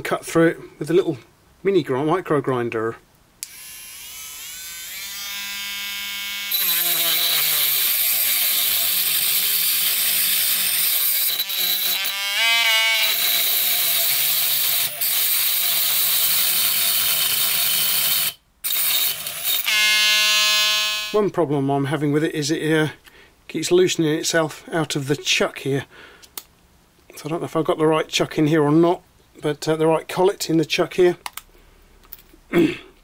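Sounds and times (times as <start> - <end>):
cut-off disc grinding metal: 3.5 - 21.2
small grinder motor whining: 3.5 - 21.2.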